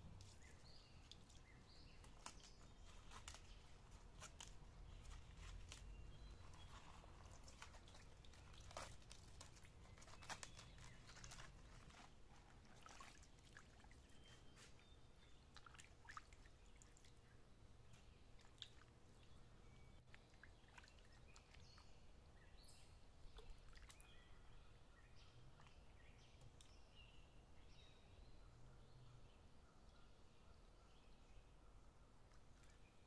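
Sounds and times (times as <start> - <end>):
water splashing and dripping: 12.7 - 14.1, 15.5 - 17.2.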